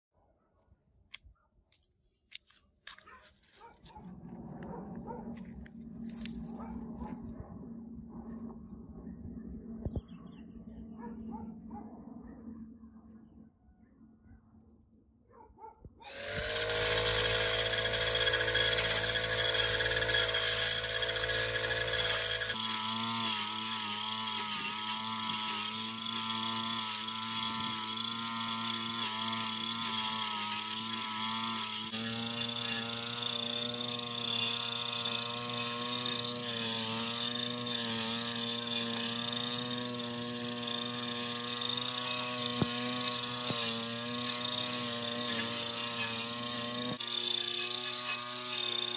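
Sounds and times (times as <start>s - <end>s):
brush cutter engine running: 16.0s - 48.9s.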